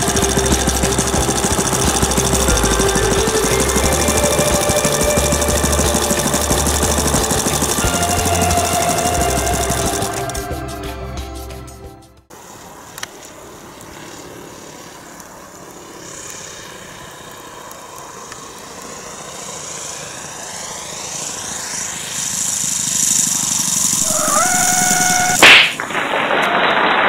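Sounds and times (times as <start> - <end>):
model plane engine: 0.0 - 10.6, 12.4 - 25.5
loud crack: 24.4 - 27.0.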